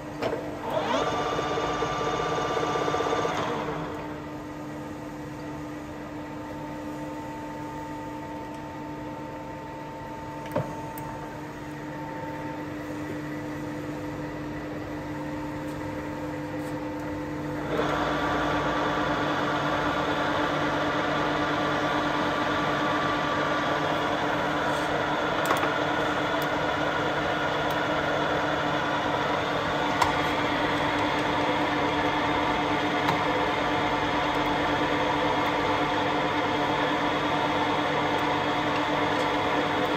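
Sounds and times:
lathe running with mechanical hum: 0.0s - 10.4s, 11.2s - 39.9s
whir of spinning gearing: 0.6s - 4.1s.

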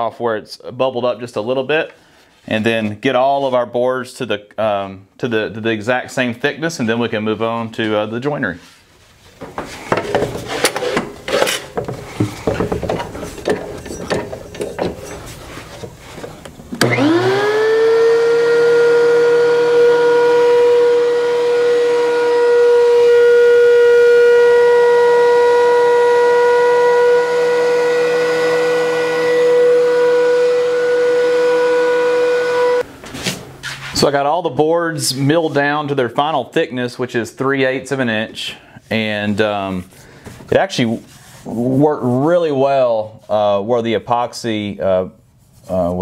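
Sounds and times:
thickness planer whining: 16.8s - 32.9s.

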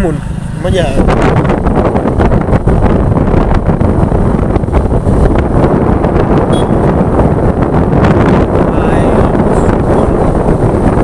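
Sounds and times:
wind buffeting on microphone: 0.0s - 11.0s.

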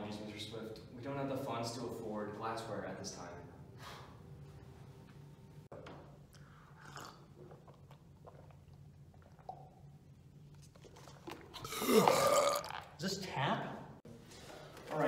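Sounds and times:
low steady hum: 0.0s - 13.0s
sipping and swallowing water: 6.2s - 13.0s.

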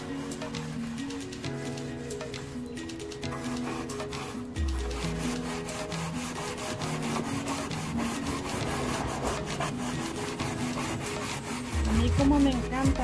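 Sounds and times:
sanding pad scrubbing wood: 0.0s - 13.0s.

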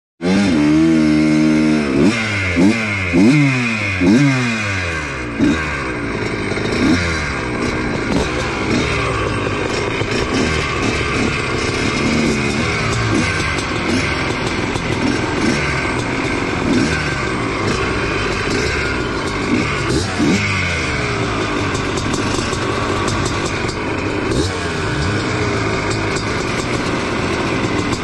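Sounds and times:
motocross bikes idling and revving: 0.2s - 28.0s
two-stroke engine revving: 0.2s - 28.0s.

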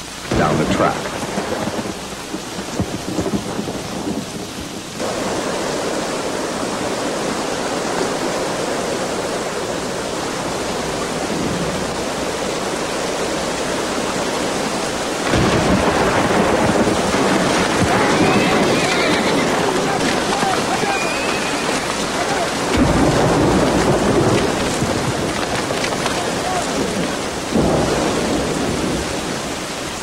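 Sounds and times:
heavy rain: 0.0s - 30.0s
thunder: 0.3s - 5.6s, 15.2s - 29.5s.

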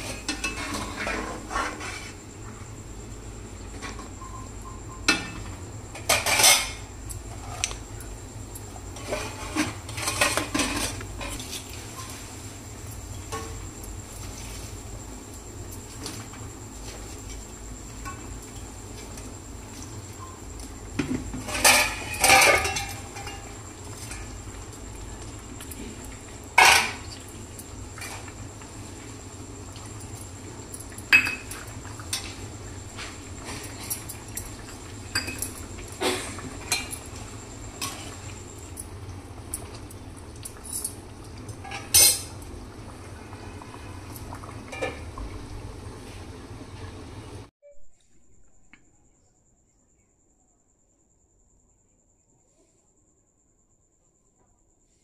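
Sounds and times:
metal utensil scraping a pan: 0.0s - 2.2s, 21.5s - 23.4s
metal utensil clinking on cookware: 21.5s - 23.5s, 41.6s - 42.3s.

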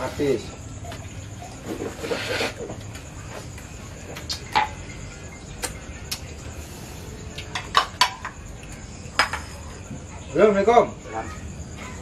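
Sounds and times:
spoons clinking on plates: 7.4s - 8.4s.

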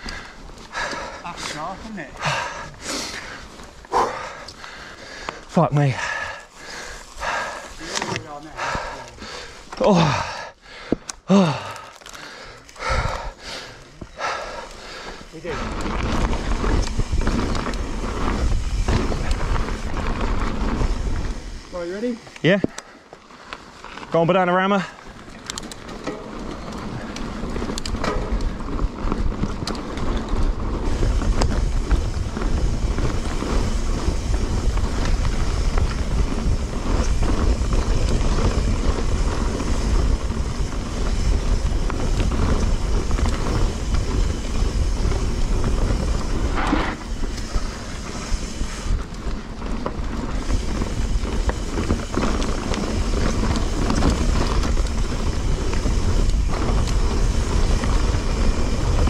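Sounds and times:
bike rattling over rough ground: 0.0s - 59.0s
wind buffeting microphone: 12.8s - 13.5s, 14.1s - 21.7s, 25.2s - 59.0s.

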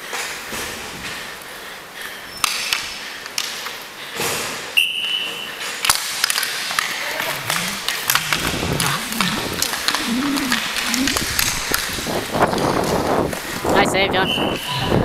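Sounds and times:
hockey sticks and puck clacking: 2.4s - 13.8s.

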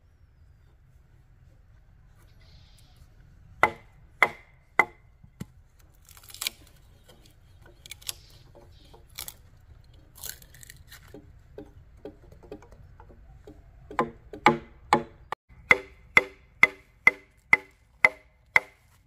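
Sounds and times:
knife chopping bamboo: 3.6s - 8.2s, 10.2s - 19.0s
knife scraping bamboo: 5.8s - 12.2s.

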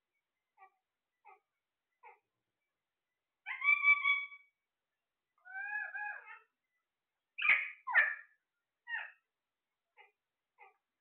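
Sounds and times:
parakeets calling: 3.4s - 4.5s, 7.4s - 9.2s.

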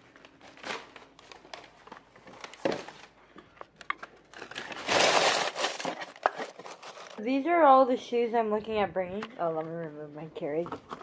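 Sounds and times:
handling knocks and rustles: 3.8s - 7.2s.

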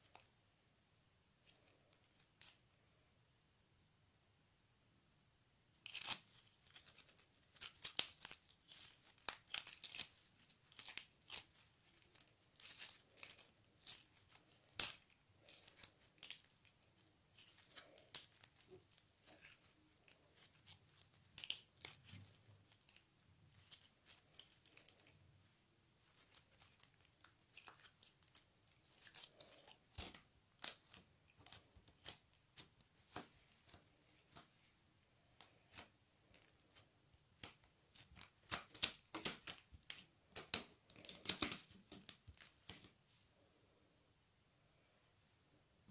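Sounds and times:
slime crackling and popping: 5.8s - 25.2s, 37.3s - 42.9s.

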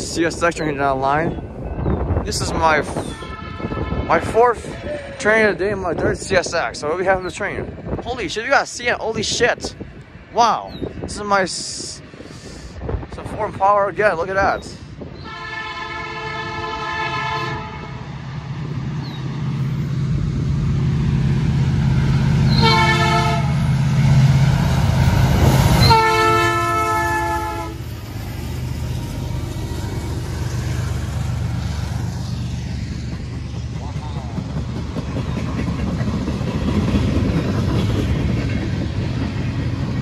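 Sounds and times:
diesel engines rumbling: 0.0s - 40.0s
locomotive air horn blasts: 3.0s - 4.8s, 15.2s - 18.0s, 22.5s - 23.7s, 25.8s - 27.9s.

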